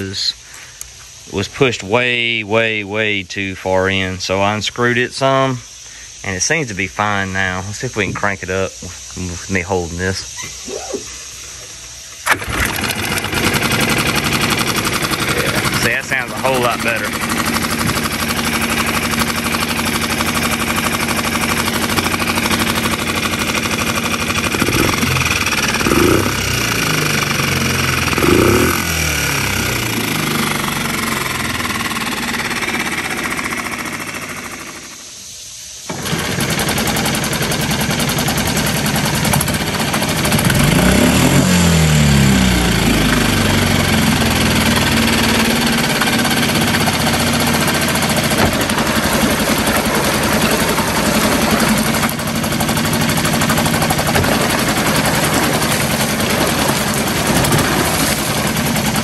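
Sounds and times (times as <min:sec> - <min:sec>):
propeller churning water: 0:11.5 - 0:35.0, 0:35.9 - 0:59.0
outboard motor revving: 0:12.1 - 0:35.0, 0:35.9 - 0:59.0.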